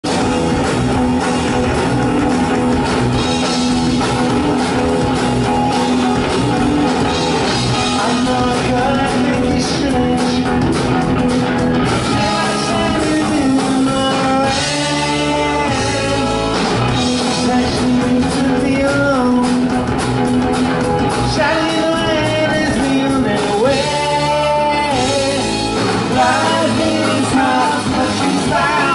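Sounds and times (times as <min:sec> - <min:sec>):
bass guitar: 0:00.0 - 0:28.9
drum kit: 0:00.0 - 0:28.9
electric guitar: 0:00.0 - 0:28.9
lead vocal singing: 0:07.7 - 0:10.8, 0:12.0 - 0:19.9, 0:21.1 - 0:28.9.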